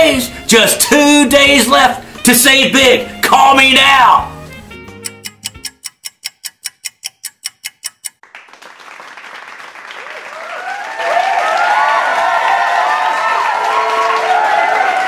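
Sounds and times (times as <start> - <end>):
clock ticking fast: 4.7 - 8.2
applause and crowd cheering: 8.2 - 15.0.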